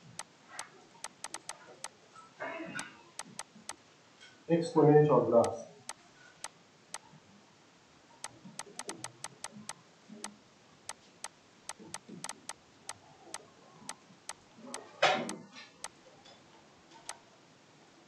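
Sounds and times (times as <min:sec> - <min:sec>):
stylus tapping on touchscreen: 0:01.0 - 0:01.9, 0:08.2 - 0:09.8, 0:10.9 - 0:12.6.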